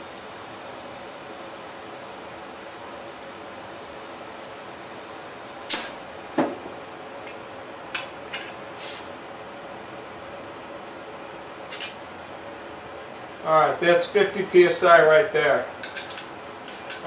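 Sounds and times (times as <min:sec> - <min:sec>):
compressed air hissing: 0:00.0 - 0:06.0, 0:08.7 - 0:09.2, 0:11.7 - 0:12.0
puffs of air at valve: 0:00.0 - 0:06.0, 0:08.7 - 0:09.2, 0:11.7 - 0:12.0
valve click: 0:05.6 - 0:05.9.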